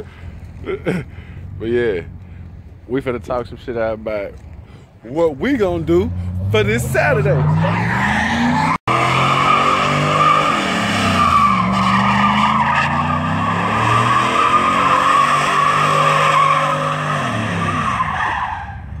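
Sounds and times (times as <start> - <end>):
truck engine revving: 5.5 - 18.2
tyres squealing: 6.3 - 18.9.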